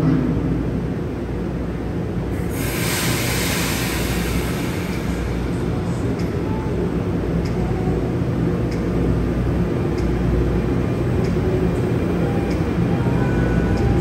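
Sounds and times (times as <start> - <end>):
train rumbling past: 0.0 - 14.0
light ticks: 6.1 - 6.4, 7.4 - 7.6, 8.7 - 8.9, 9.9 - 10.2, 11.2 - 11.4.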